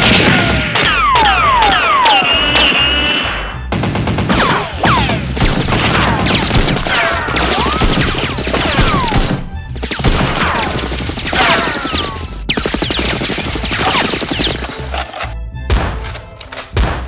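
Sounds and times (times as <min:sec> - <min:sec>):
rapid gunshots: 0:00.0 - 0:03.0, 0:03.7 - 0:15.0.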